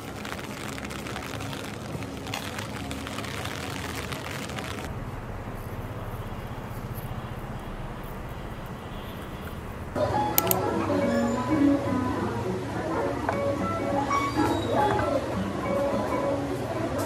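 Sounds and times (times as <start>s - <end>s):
rain on an umbrella: 0.0s - 10.0s
low outdoor rumble: 0.0s - 10.2s.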